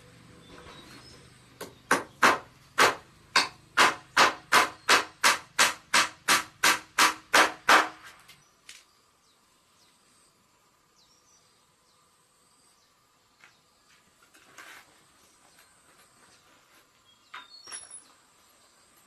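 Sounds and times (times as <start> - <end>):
hammer driving nail into wood: 1.6 - 8.2.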